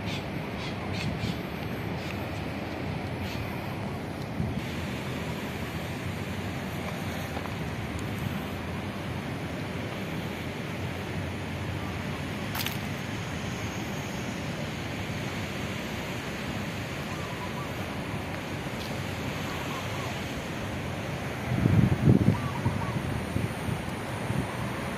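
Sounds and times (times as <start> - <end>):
outdoor street roar: 0.0 - 24.9.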